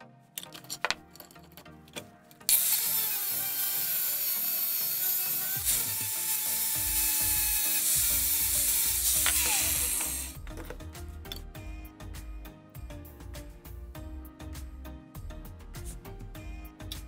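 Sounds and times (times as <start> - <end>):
angle grinder cutting steel: 2.5 - 10.4.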